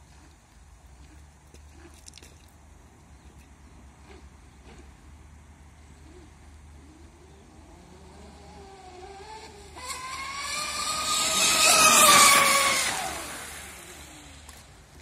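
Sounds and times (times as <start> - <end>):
model speedboat motor whine: 6.1 - 14.6.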